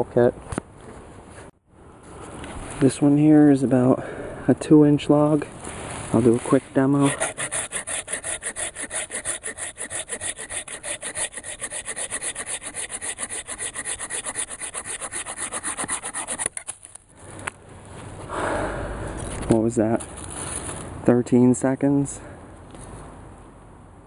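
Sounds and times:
pruning saw cutting log: 6.3s - 17.0s.

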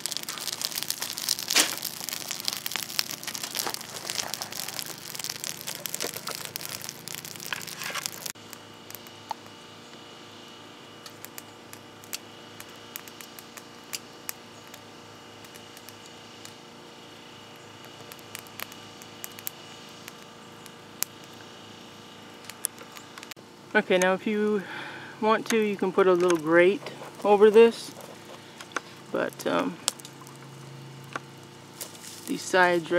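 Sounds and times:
aluminium foil crinkling: 0.0s - 9.5s, 11.0s - 16.6s, 17.6s - 21.4s, 25.5s - 30.7s, 31.7s - 32.9s
dry twigs rustling: 0.0s - 9.6s, 25.4s - 32.9s
fire crackling and popping: 0.0s - 32.9s.

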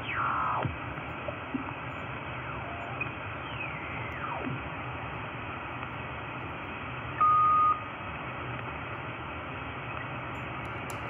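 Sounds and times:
radio static hiss: 0.0s - 7.2s.

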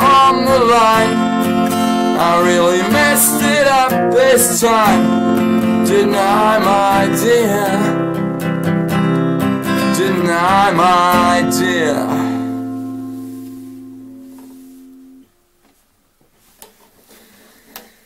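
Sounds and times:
man singing: 0.0s - 8.1s, 9.6s - 12.9s
acoustic guitar strumming: 0.0s - 15.5s.

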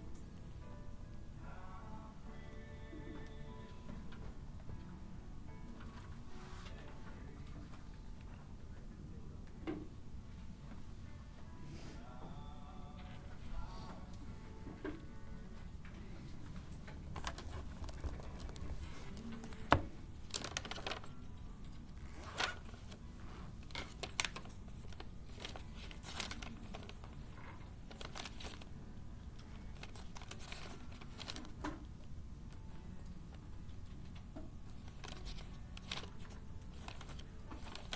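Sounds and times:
paper rustling and crinkling: 16.3s - 28.7s, 29.4s - 31.8s, 34.7s - 37.9s.

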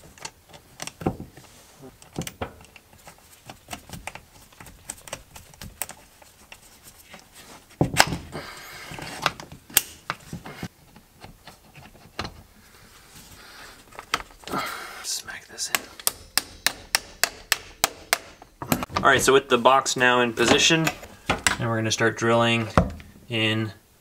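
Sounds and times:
knocks: 15.7s - 19.3s.

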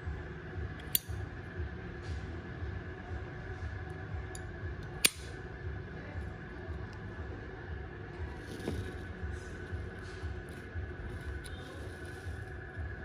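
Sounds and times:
low hum: 0.0s - 13.0s
lighter lid snapping: 0.8s - 1.2s, 4.3s - 5.3s.

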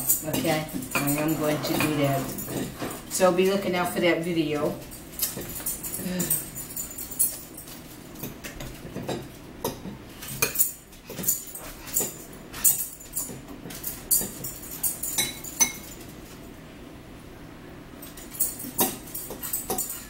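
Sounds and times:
cutlery clinking on plates: 0.0s - 3.0s, 8.2s - 16.1s, 18.1s - 20.0s.

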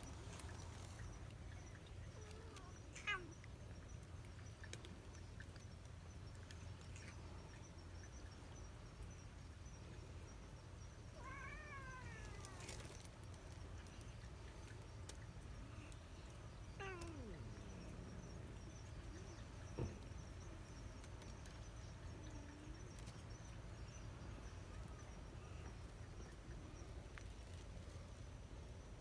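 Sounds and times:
cats meowing: 1.8s - 3.5s, 11.1s - 13.1s, 15.7s - 20.0s.

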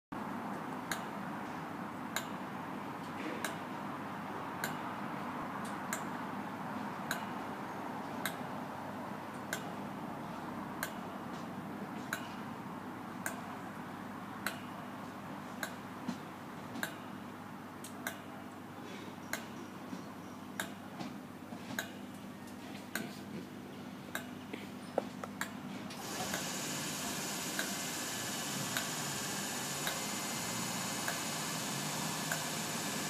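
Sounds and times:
sharp clicks: 25.4s - 33.0s
electric train humming: 26.0s - 33.0s.

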